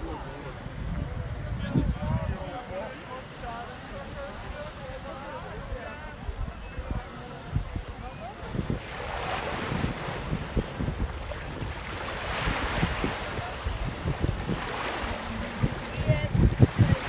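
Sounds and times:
gusty wind buffeting microphone: 0.0s - 2.9s, 5.5s - 17.0s
surf washing: 8.1s - 17.0s.

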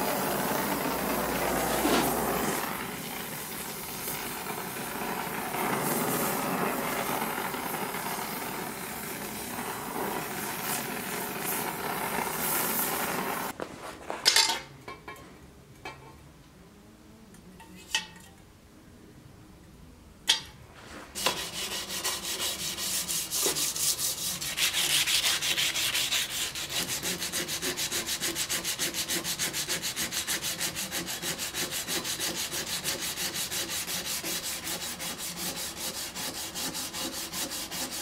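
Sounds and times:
torch flame hissing: 0.0s - 13.6s.

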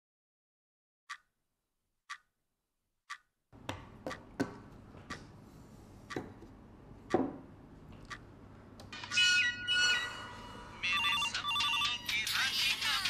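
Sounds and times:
wall clock ticking: 1.1s - 1.3s, 2.1s - 2.3s, 3.1s - 8.8s
glass bottles knocking on wooden table: 7.1s - 7.4s.

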